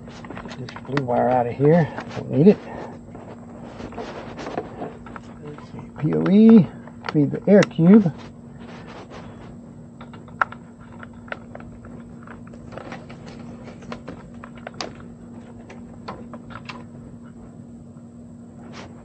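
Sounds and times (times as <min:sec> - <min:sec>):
steady low hum: 0:00.0 - 0:19.0
cables clicking into connectors: 0:05.0 - 0:07.8.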